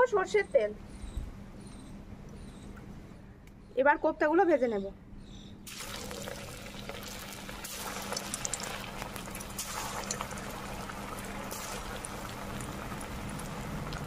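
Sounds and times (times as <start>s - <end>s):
deep-frying sizzle with pops: 5.7s - 14.0s.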